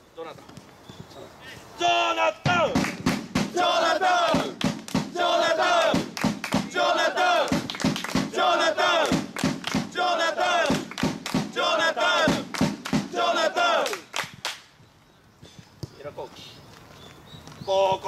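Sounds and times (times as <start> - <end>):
crowd chanting in unison: 3.4 - 14.0.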